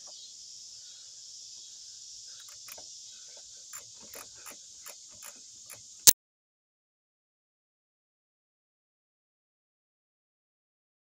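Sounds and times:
crickets chirping: 0.0 - 6.1.

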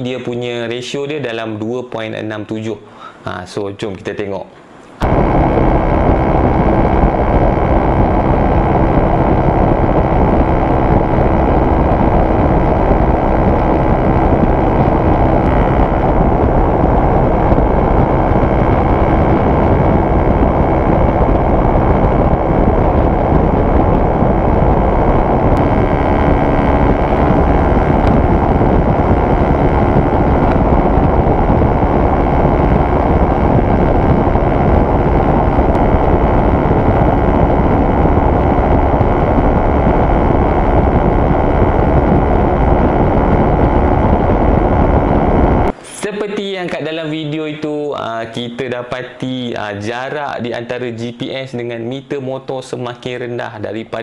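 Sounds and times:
wind rushing on microphone: 5.0 - 45.8.

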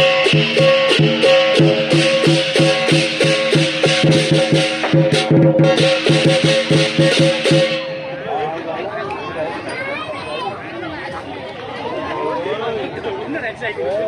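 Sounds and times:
music with shaker percussion: 0.0 - 8.0.

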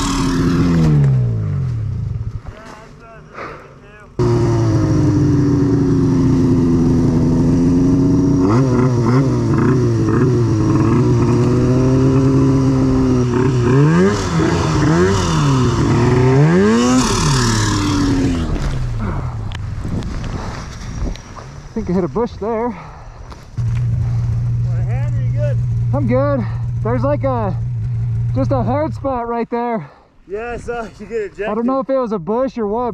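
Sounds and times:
snowmobile engine revving: 0.0 - 1.7, 2.7 - 19.2, 23.6 - 29.3.

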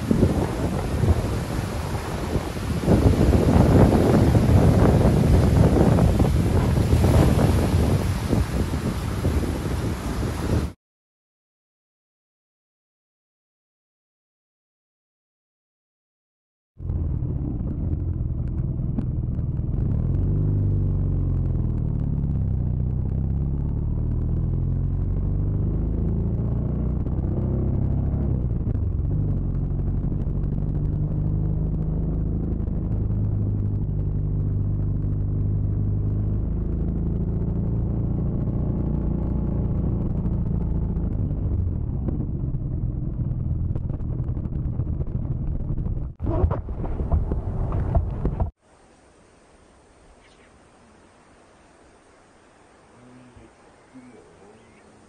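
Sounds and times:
motorcycle engine running: 0.0 - 9.2, 16.8 - 46.4
wind rush: 0.0 - 10.8, 25.0 - 48.6.

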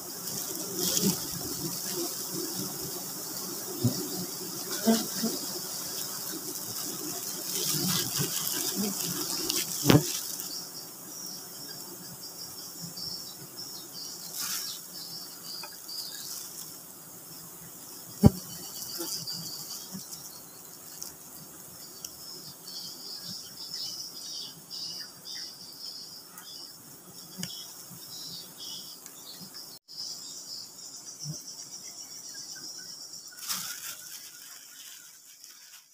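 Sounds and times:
bees buzzing: 0.0 - 13.3
rustling: 0.2 - 3.1, 4.6 - 10.7, 33.3 - 35.9.

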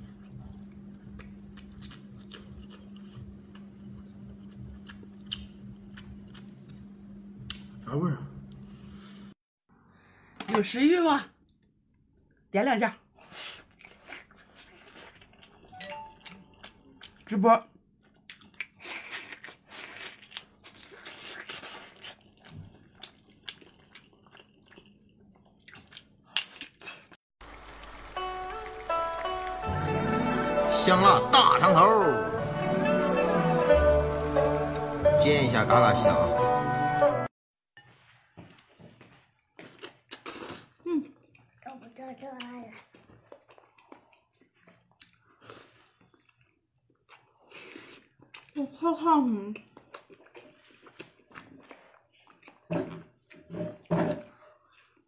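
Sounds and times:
person chewing food: 0.0 - 7.8, 13.2 - 27.8, 38.2 - 48.6, 49.5 - 55.0.

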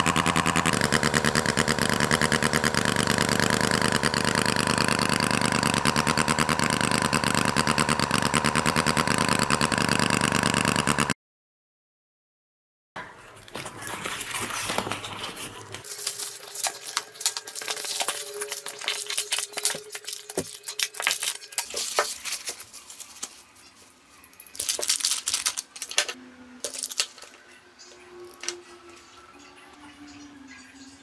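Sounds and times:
plastic and bubble wrap crinkling: 13.5 - 27.3
small parts clicking and rattling: 15.8 - 27.4.

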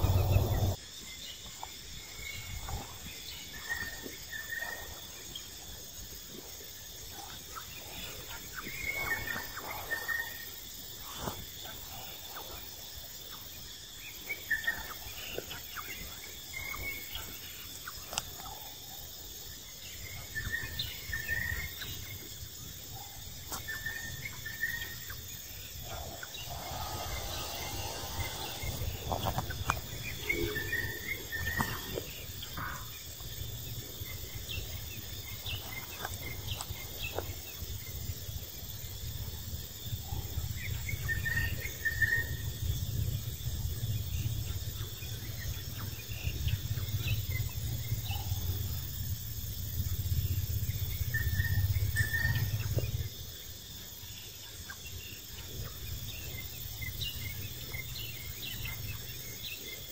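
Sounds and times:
low rumble: 0.0 - 0.8
insects droning: 0.0 - 59.9.

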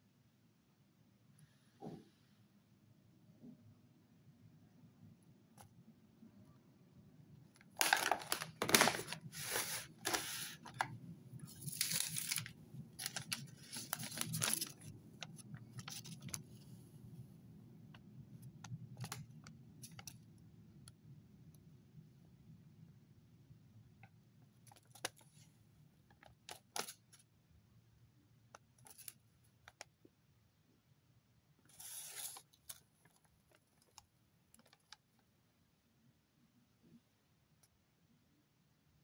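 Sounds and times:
light paper crinkles and taps: 7.6 - 16.7, 24.6 - 25.5, 26.1 - 27.2, 28.6 - 29.9
paper receipt rustling: 7.8 - 16.6, 31.7 - 34.0.

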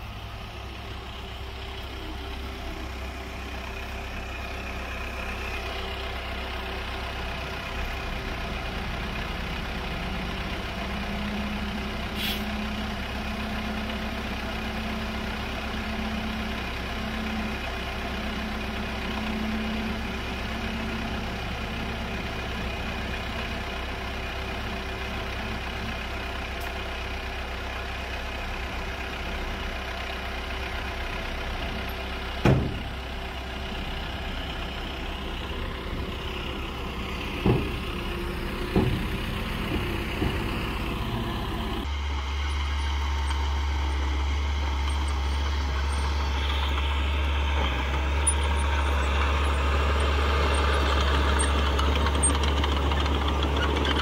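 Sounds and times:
diesel engines running: 0.0 - 54.0
hydraulic hoist engine tone: 30.7 - 54.0.

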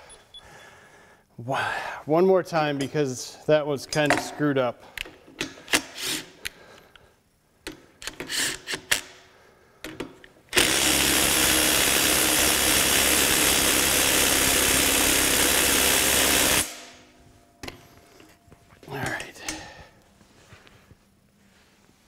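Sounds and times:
impact wrench running: 10.5 - 17.1.

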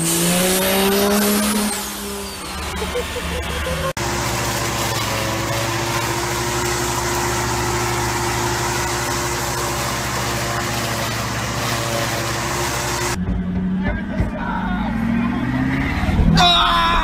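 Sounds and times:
lawn mower cutting hedge: 0.0 - 13.2
compact tractor engine running: 1.9 - 14.9.

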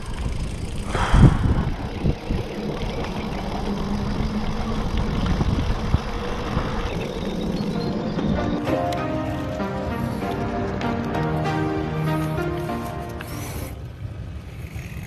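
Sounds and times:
wind on microphone: 0.0 - 8.6
bike tyres droning on concrete: 0.0 - 15.0.

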